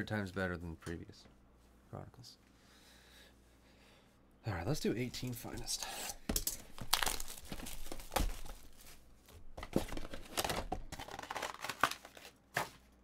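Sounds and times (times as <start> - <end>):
plastic wrapping tearing and crinkling: 6.3 - 9.0, 9.7 - 12.8.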